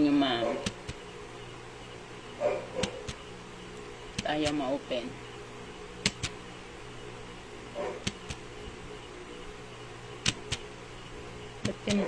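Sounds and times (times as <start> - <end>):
steady low hum: 0.0 - 12.0
sharp double clicks: 6.0 - 6.4, 8.0 - 8.4, 10.2 - 10.7.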